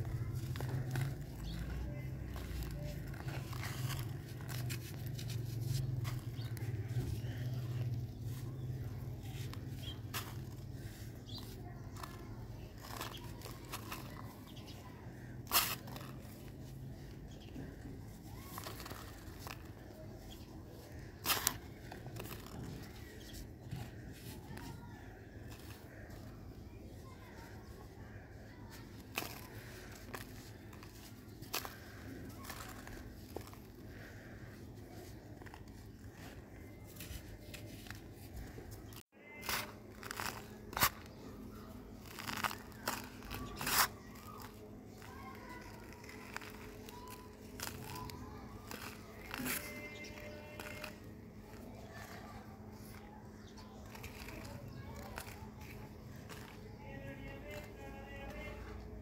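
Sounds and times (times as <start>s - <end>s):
dirt crumbling under a hand: 0.0s - 27.7s
dry dirt crunching in hand: 0.0s - 59.0s.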